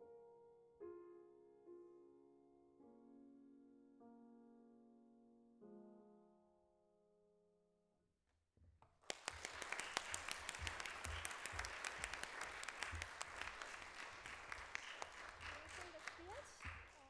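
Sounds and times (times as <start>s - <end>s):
audience clapping: 8.8s - 17.0s.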